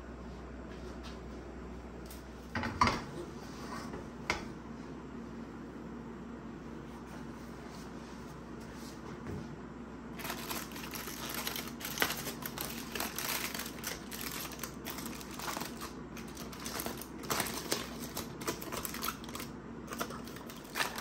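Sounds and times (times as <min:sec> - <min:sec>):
aluminium foil crinkling: 0:10.2 - 0:21.0.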